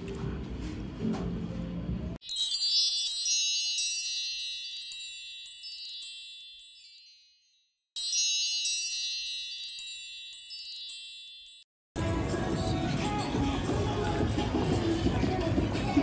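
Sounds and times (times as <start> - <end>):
tinkling wind chimes: 2.2 - 11.7.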